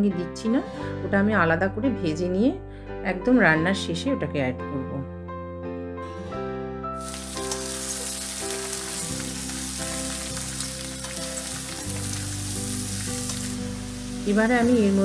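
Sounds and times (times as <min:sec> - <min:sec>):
soft background music: 0:00.0 - 0:15.0
vegetables sizzling in hot oil: 0:07.0 - 0:15.0.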